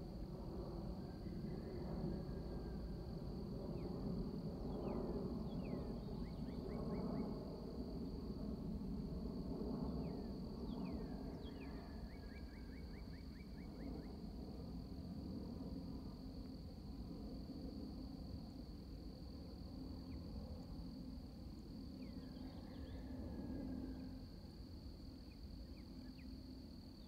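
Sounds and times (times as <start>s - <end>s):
jet airliner rumble overhead: 0.0s - 27.0s.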